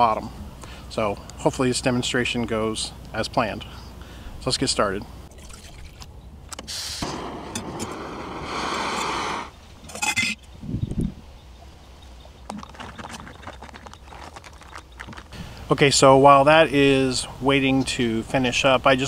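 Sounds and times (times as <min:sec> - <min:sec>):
camping stove hissing: 0:06.6 - 0:10.2.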